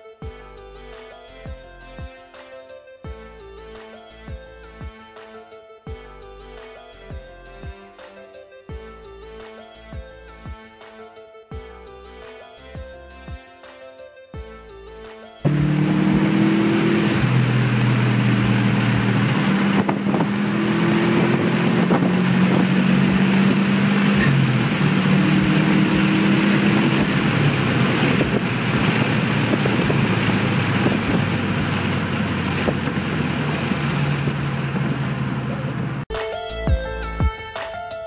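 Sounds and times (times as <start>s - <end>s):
road and wind noise: 15.4s - 36.0s
car exhaust droning: 15.5s - 36.0s.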